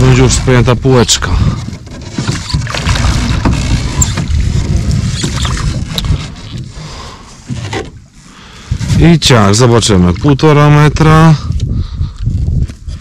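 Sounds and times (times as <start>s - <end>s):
water sloshing: 0.0s - 8.8s.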